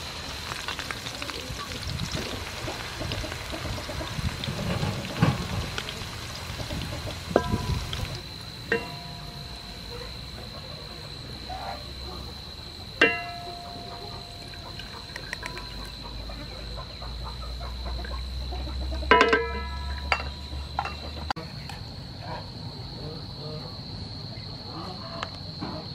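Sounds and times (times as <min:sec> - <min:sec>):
shallots sizzling in oil: 0:00.0 - 0:21.8
utensils knocking on a wok: 0:07.3 - 0:09.9, 0:13.0 - 0:16.2, 0:18.0 - 0:21.4
thin high whine: 0:07.4 - 0:16.6.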